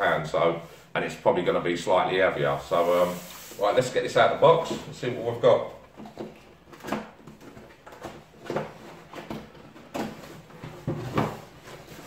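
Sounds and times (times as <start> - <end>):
cardboard scraping: 2.6 - 5.6, 6.2 - 12.0.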